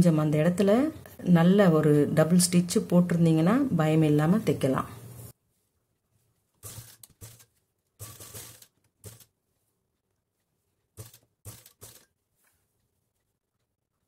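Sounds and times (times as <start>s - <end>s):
sewing machine stitching: 6.6s - 9.3s, 11.0s - 12.1s.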